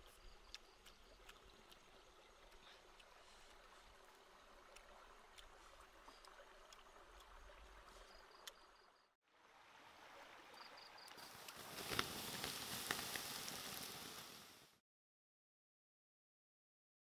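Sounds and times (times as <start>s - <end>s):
stream running water: 0.0s - 14.8s
steady hiss with sharp cracks: 11.0s - 14.8s.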